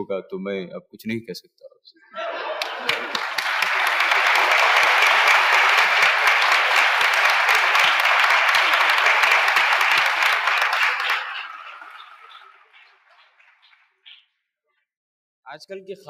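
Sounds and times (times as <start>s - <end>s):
audience applauding: 2.2s - 14.2s.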